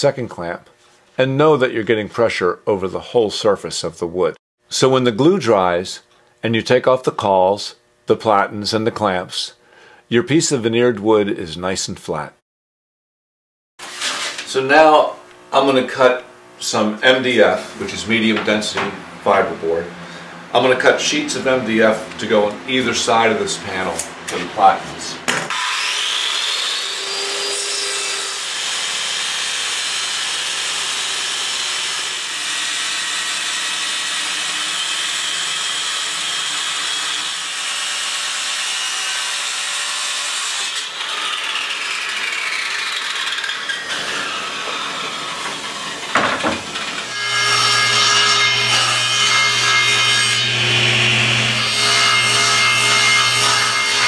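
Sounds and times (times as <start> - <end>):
circular saw cutting board: 13.8 - 54.0
table saw cutting panels: 13.8 - 54.0.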